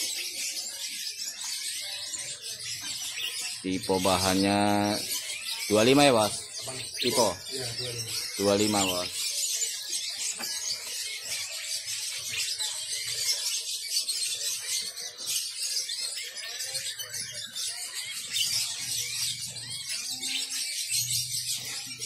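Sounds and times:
faint voices murmuring: 0.0 - 22.0
songbirds chirping: 0.0 - 22.0.

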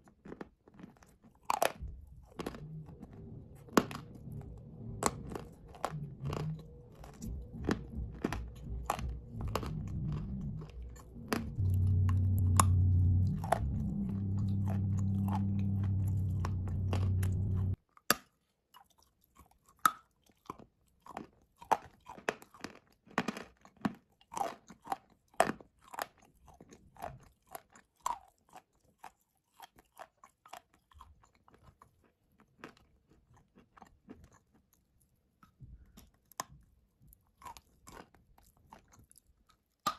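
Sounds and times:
crunching and chewing clay: 0.0 - 39.9
low hum: 1.8 - 17.8.

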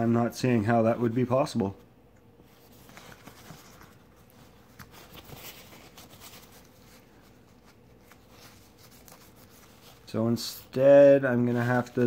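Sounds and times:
paper towel wiping metal: 2.6 - 12.0.

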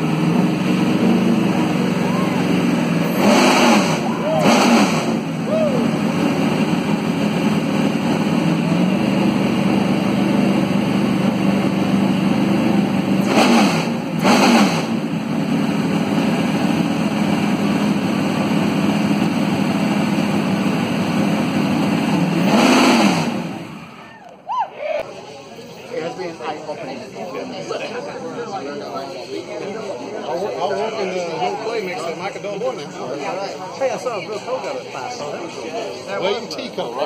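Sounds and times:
race car engine idling and revving: 0.0 - 24.3.

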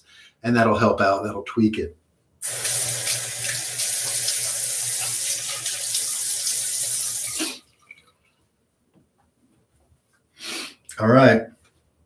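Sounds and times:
tap running into sink: 2.4 - 7.4
water splashing on face: 2.4 - 8.1.

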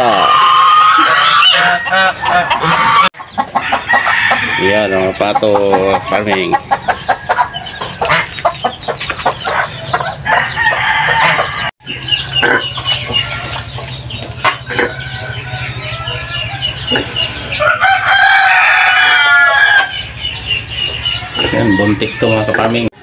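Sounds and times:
rooster crowing: 0.0 - 5.3, 10.3 - 12.4, 14.6 - 20.0, 21.1 - 22.9
chickens clucking: 0.0 - 23.0.

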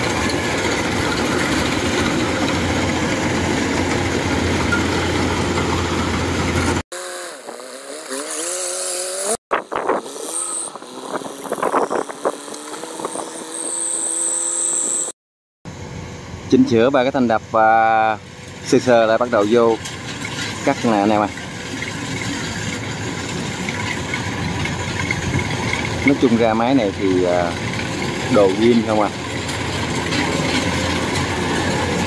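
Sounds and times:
combine harvester running: 0.0 - 6.8, 15.7 - 32.0
engine pitch rising and falling: 0.0 - 15.1
metal clanks: 19.3 - 32.0.

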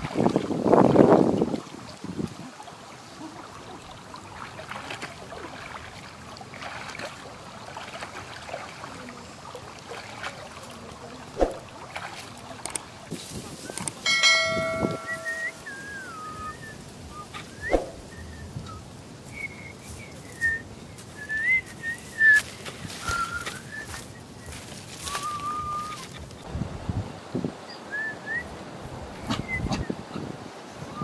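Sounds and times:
legs wading through shallow water: 0.0 - 26.5
low outdoor hiss: 0.0 - 31.0
brief whistling glides: 11.4 - 11.6, 14.3 - 20.6, 21.2 - 26.1
bell-like notification chime: 14.1 - 15.6.

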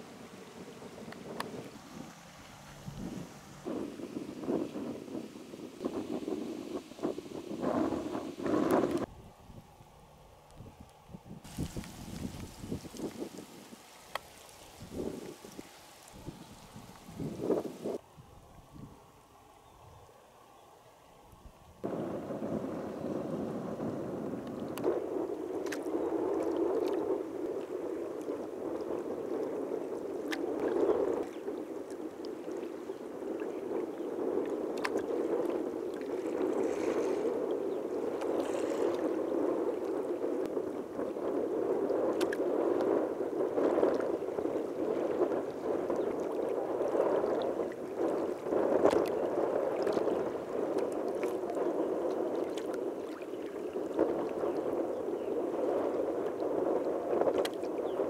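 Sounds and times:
water lapping against hull: 0.0 - 9.1, 11.4 - 18.0, 21.8 - 58.0
water slaps and splashes: 11.5 - 17.8.

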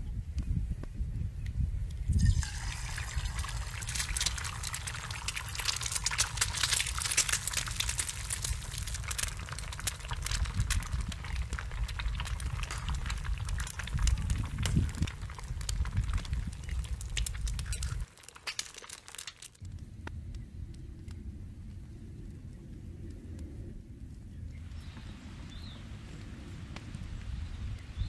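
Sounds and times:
egg sizzling in hot oil: 2.1 - 19.6.

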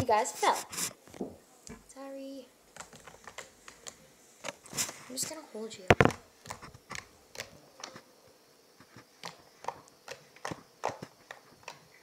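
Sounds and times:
slime clicking under fingertips: 6.0 - 8.0.

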